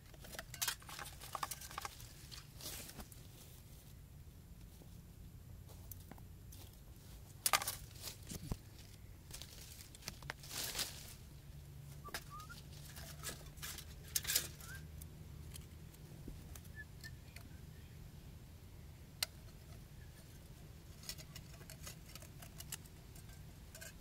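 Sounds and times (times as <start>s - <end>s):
bird chirps: 12.0s - 12.7s, 14.5s - 14.9s, 16.6s - 18.0s.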